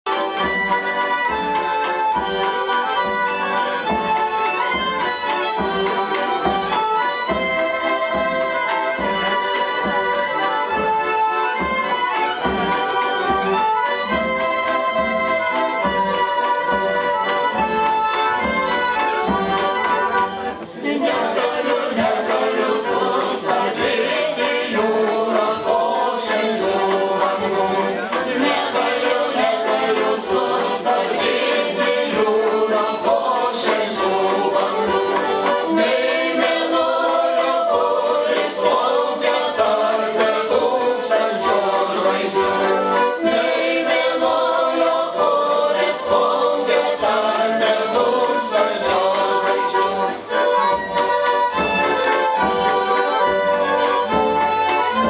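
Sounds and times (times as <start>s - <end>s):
folk ensemble with concertinas: 0.0s - 55.0s
voices singing: 18.5s - 55.0s.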